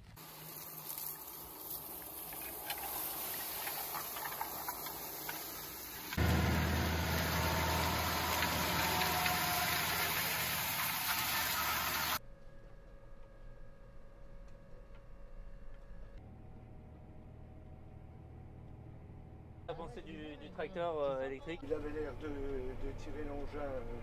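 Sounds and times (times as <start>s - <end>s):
soil rushing past harrow discs: 0.2s - 12.2s
tractor engine droning: 1.2s - 12.2s, 21.6s - 24.0s.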